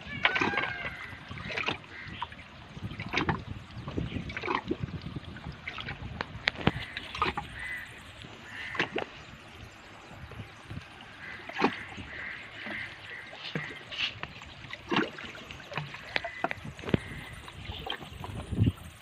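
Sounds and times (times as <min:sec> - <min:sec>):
water lapping against rocks: 0:00.0 - 0:19.0
clicks and knocks of fishing gear: 0:06.2 - 0:07.4.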